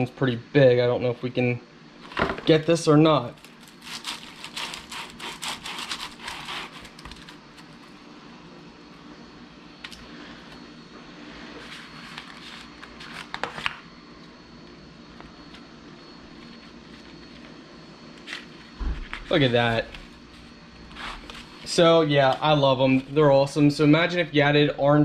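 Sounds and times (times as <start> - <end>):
steady low hum: 0.0 - 25.0
cookie cutter scraping and clicking: 3.4 - 7.4.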